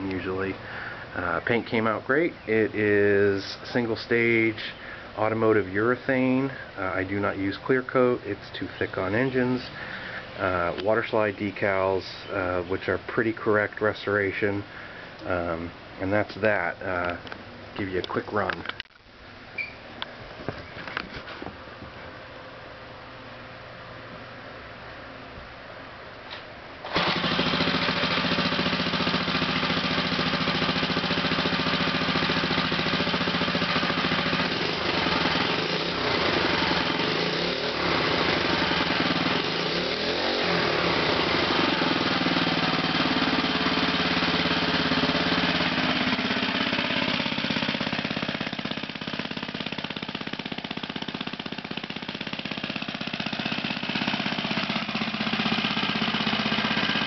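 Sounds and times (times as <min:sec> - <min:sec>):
single-cylinder engine running: 0:26.8 - 0:57.0.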